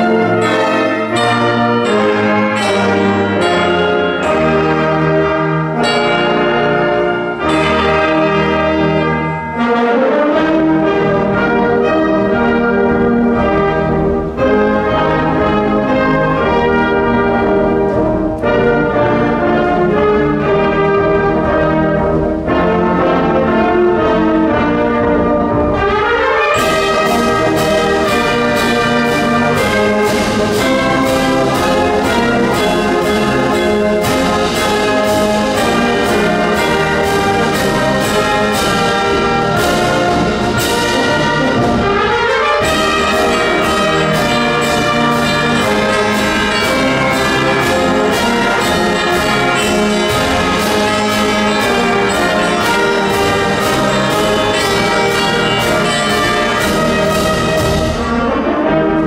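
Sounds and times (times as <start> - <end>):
brass chords: 0.0 - 59.0
cymbals and drums march beat: 24.8 - 58.3.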